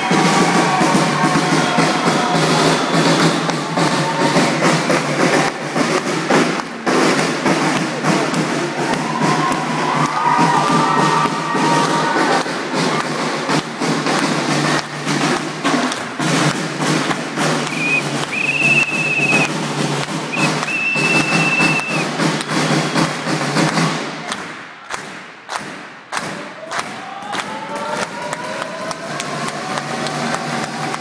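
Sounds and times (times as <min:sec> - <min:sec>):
loud music: 0:00.0 - 0:24.2
crowd clapping: 0:00.0 - 0:31.0.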